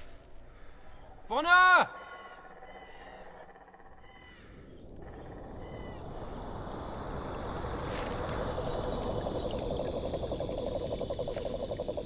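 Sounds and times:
night forest ambience: 0.0s - 12.0s.

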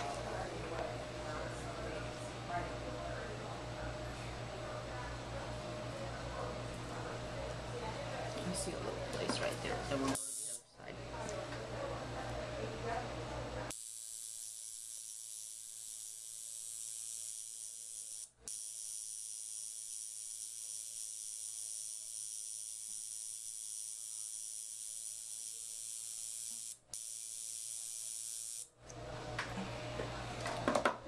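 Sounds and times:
tattoo pen high-pitched hiss: 10.2s - 10.6s, 13.7s - 28.7s.

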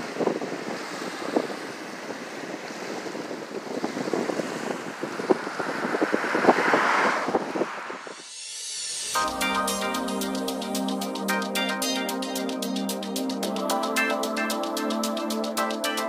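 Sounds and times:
wind buffeting microphone: 0.0s - 8.2s
waves lapping on shore: 0.0s - 11.3s.

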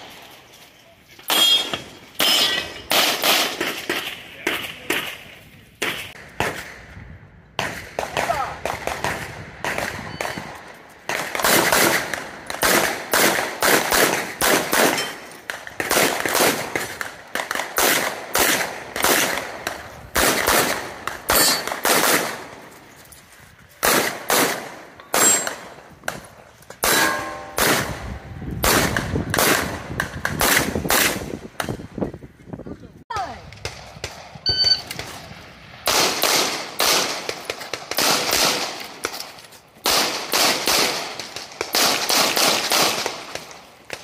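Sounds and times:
steel targets ringing: 1.3s - 2.9s, 26.9s - 27.6s, 34.5s - 34.9s
pistol shots: 1.3s - 5.2s, 7.6s - 22.6s, 23.8s - 31.8s, 35.8s - 39.1s, 39.8s - 43.5s.

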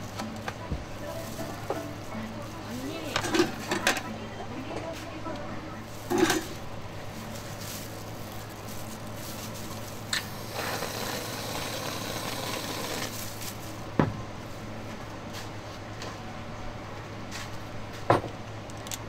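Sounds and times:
soft rustling of plastic bag: 0.6s - 3.8s, 4.5s - 10.6s, 13.1s - 14.7s.

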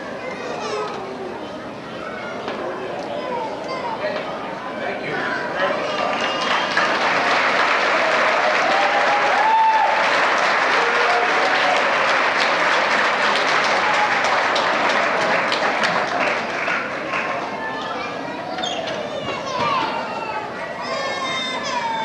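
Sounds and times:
audience applauding: 5.8s - 17.8s.

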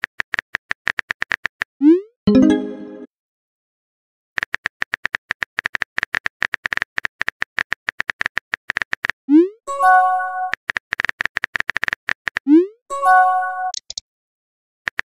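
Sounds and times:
rapid keyboard typing: 0.0s - 1.7s, 4.4s - 9.2s, 10.5s - 12.5s.

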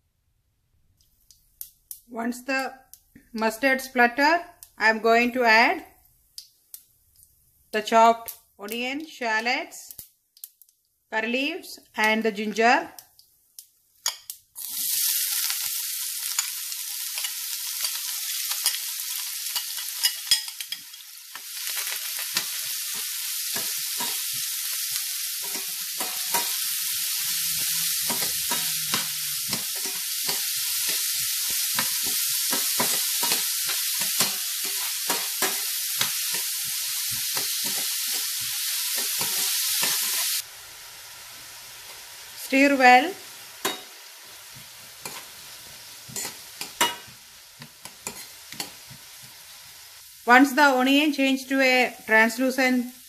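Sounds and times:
food sizzling in hot oil: 1.3s - 53.0s
metal spoon scraping a pan: 19.5s - 21.1s, 21.7s - 40.4s, 43.6s - 49.0s.

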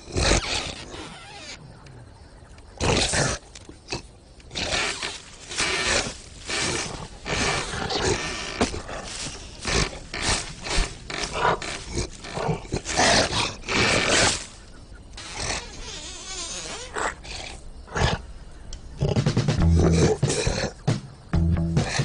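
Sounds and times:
cartoon lion roaring and growling: 2.8s - 14.5s, 19.0s - 20.9s.

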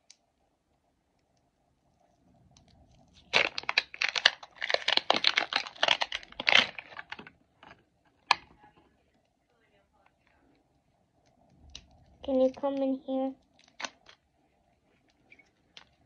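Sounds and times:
plastic wrapping crinkling: 3.0s - 8.4s, 11.7s - 14.2s.

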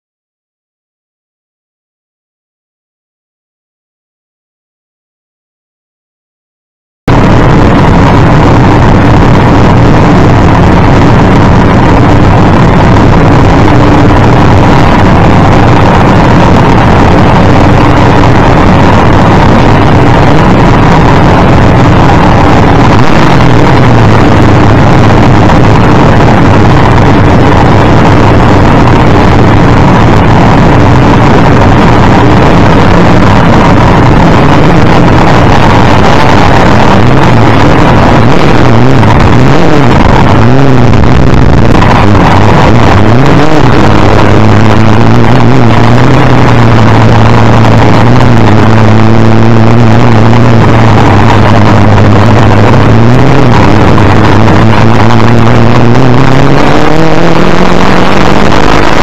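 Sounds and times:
car engines idling: 7.1s - 59.0s.

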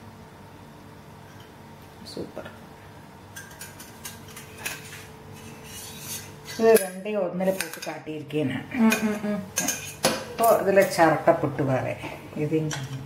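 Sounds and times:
metal scraping on steel plate: 4.6s - 6.9s.

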